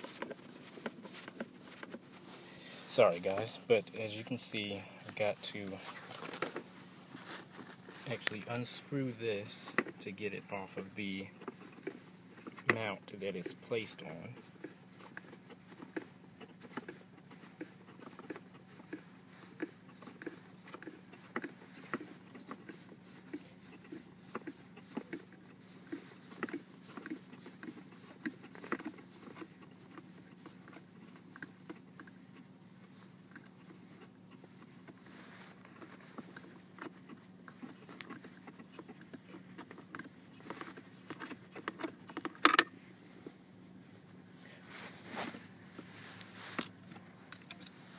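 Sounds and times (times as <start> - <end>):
plastic clatter: 5.9 - 6.7, 37.8 - 42.7.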